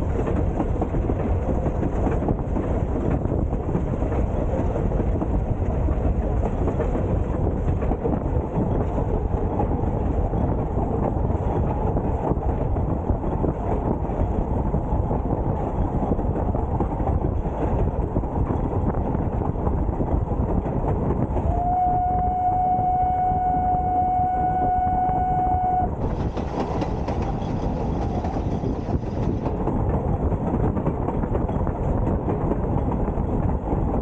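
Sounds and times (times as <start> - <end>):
train wheels rumbling on track: 0.0 - 34.0
steam locomotive whistle: 21.4 - 26.0.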